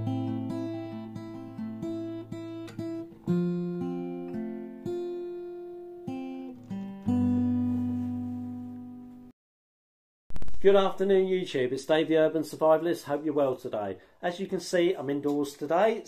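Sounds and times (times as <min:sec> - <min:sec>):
acoustic guitar chords: 0:00.0 - 0:09.3.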